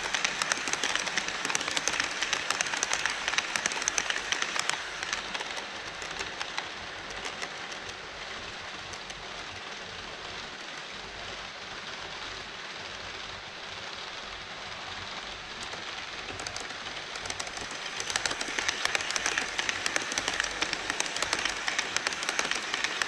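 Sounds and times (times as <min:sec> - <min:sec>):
model train wheels rattling on track: 0:00.0 - 0:10.6, 0:15.2 - 0:23.0
steady hiss: 0:00.0 - 0:23.0.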